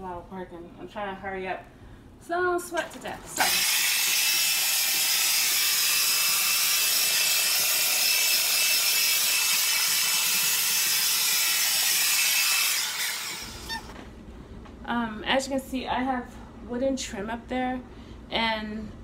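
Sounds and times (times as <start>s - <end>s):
paint sprayer hissing: 3.4s - 13.8s
turbine whine: 3.4s - 14.0s.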